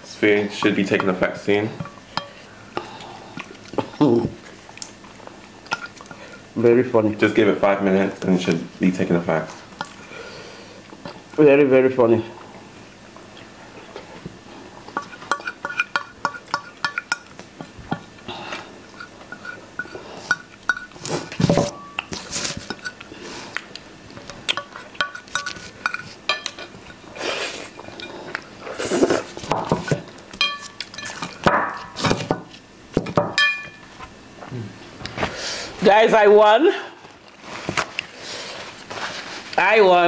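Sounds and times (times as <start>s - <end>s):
forks clinking on ceramic plates: 30.4s - 31.3s, 33.4s - 33.8s.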